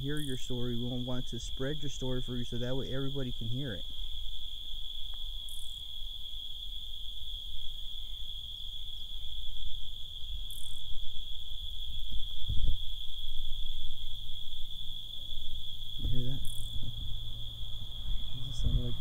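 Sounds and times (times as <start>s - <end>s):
night insects trilling: 0.0s - 19.0s
low rumble of handling noise: 15.5s - 19.0s.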